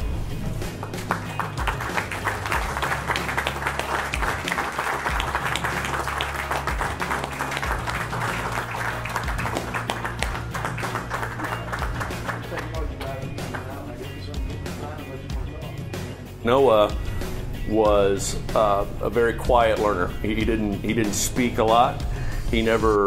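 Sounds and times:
background music: 0.0 - 23.0
people applauding: 0.7 - 13.9.

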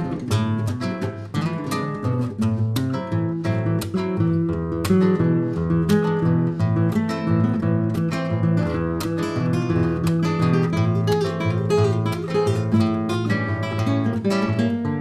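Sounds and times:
acoustic guitar strumming and plucking: 0.0 - 15.0.

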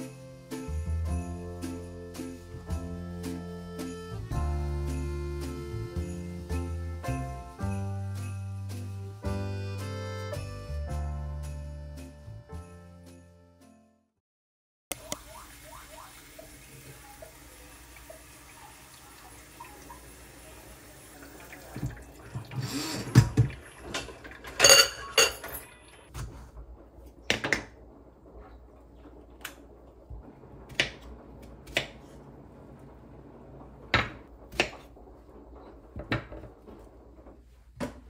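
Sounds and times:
dishes and utensils clattering: 21.6 - 26.3.

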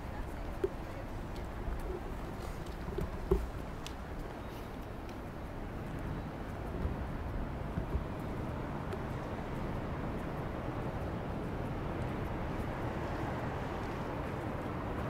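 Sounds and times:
low rumble of city ambience: 0.0 - 15.0
faint clicks: 0.1 - 15.0.

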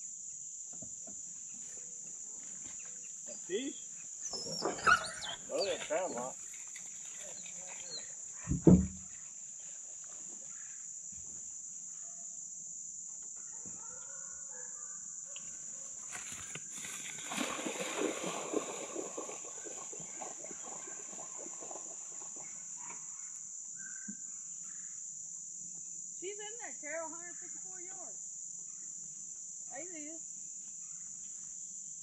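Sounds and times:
rustling through tall grass: 5.6 - 8.3, 16.1 - 19.5.

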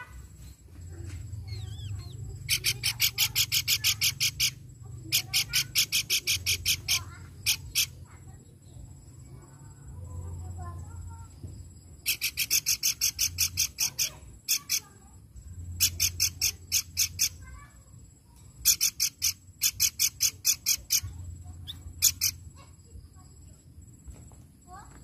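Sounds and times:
bird calling sharp harsh notes: 1.4 - 8.1, 12.0 - 15.0, 15.7 - 17.7, 18.5 - 22.6.

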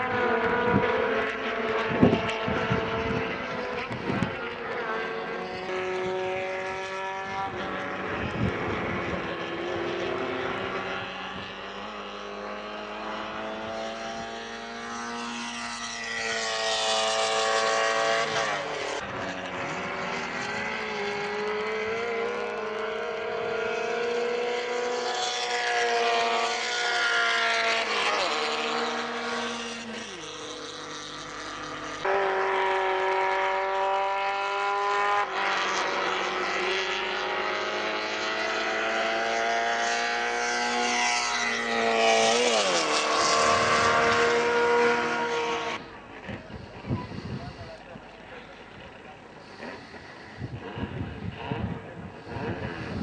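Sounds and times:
race car engines at high revs: 0.0 - 53.0.

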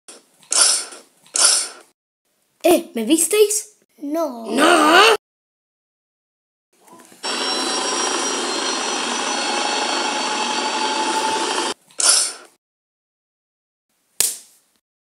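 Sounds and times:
mechanical whirring: 7.2 - 12.6.

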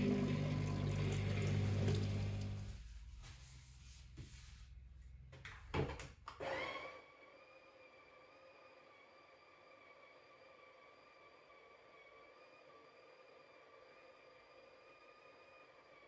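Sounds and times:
espresso machine pump humming: 0.0 - 2.7.

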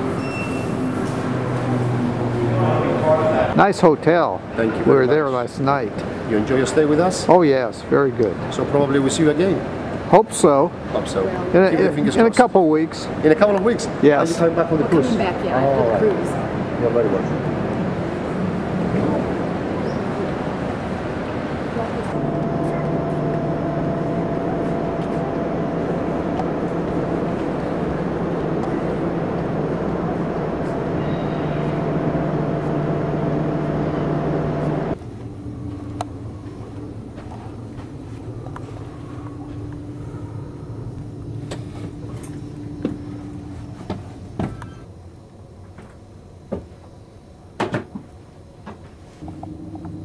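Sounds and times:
ship machinery humming: 0.0 - 7.2, 13.7 - 45.2, 49.2 - 50.0.

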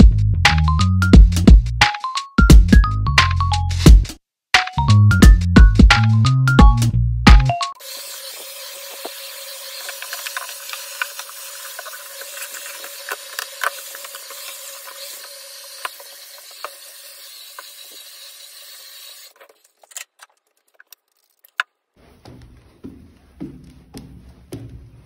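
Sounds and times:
stick vacuum running: 7.8 - 19.4.

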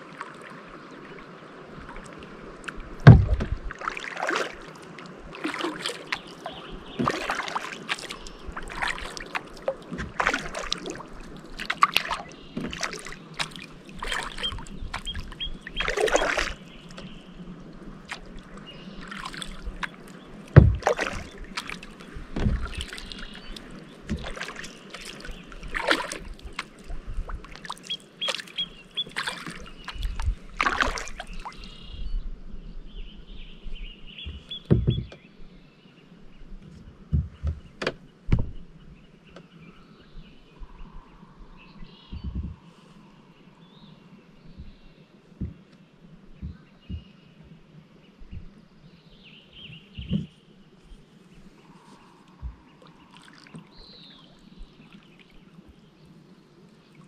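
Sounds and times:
water splashes and drips: 0.0 - 31.9, 44.4 - 47.6, 49.9 - 57.0
paddle strokes in water: 0.0 - 32.0, 34.0 - 35.4, 36.2 - 57.0
loud thump: 3.0 - 3.7, 20.6 - 20.9, 37.1 - 38.6.

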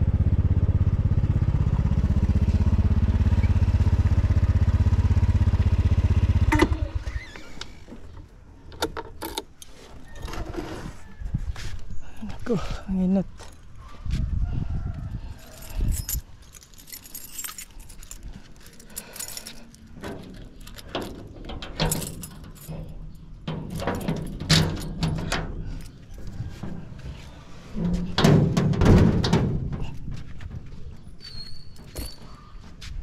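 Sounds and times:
keys jangling: 15.4 - 26.4
metal gate clanking open: 18.9 - 26.9, 27.7 - 30.1, 30.8 - 32.5.

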